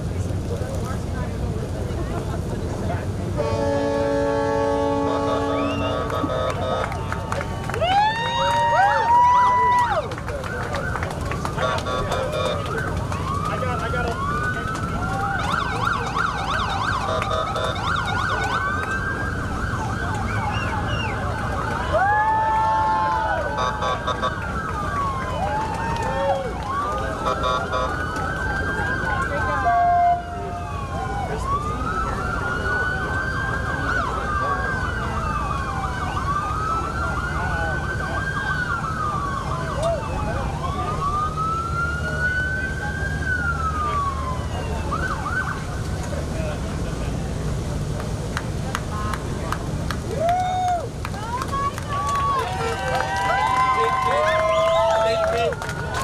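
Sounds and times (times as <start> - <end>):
wailing siren: 3.4 - 46.2, 50.1 - 56.0
yelping siren: 4.3 - 45.8.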